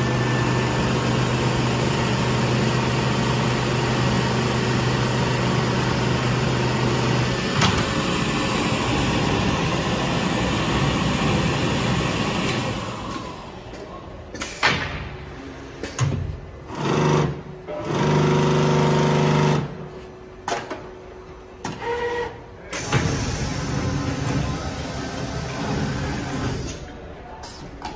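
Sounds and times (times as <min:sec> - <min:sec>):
stitching and motor hum: 0:00.0 - 0:13.7, 0:16.6 - 0:19.9, 0:21.6 - 0:26.8
sewing machine running: 0:16.7 - 0:19.7.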